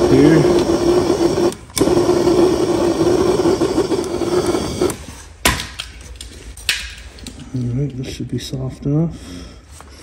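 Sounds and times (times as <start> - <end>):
propane torch flame humming: 0.0 - 5.4.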